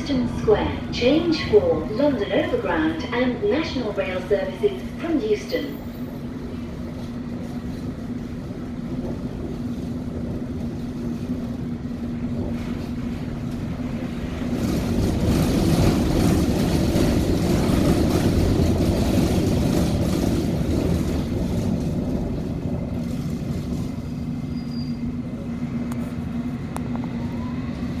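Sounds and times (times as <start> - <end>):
constant low hum: 0.0 - 28.0
train wheels rumbling on track: 0.0 - 28.0.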